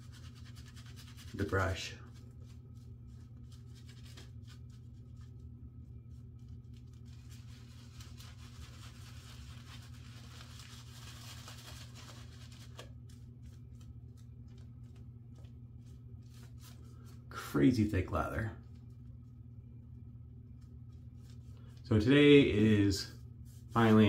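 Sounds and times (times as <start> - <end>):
shaving brush rustling in lather: 0.0 - 17.3, 22.8 - 24.0
steady low hum: 0.0 - 24.0.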